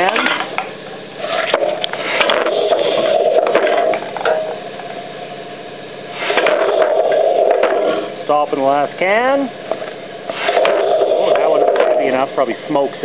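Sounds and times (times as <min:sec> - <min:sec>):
compressed air rushing: 0:01.2 - 0:04.2, 0:06.1 - 0:08.3, 0:10.2 - 0:12.1.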